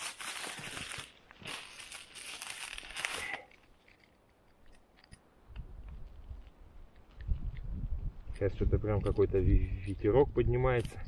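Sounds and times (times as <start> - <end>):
bark tearing and rustling: 0.0 - 5.2.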